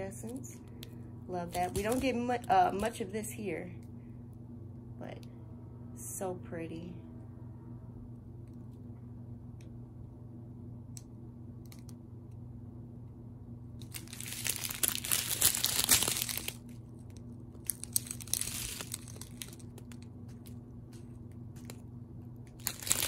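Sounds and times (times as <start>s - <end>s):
low steady hum: 0.0s - 23.0s
plastic bags crinkling: 1.4s - 2.6s, 13.8s - 16.8s, 17.5s - 20.6s, 22.5s - 23.0s.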